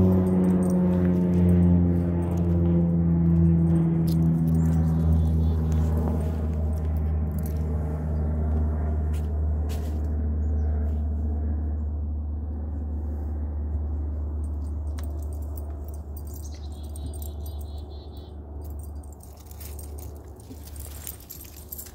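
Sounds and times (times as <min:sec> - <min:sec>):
steady low hum: 0:00.0 - 0:21.9.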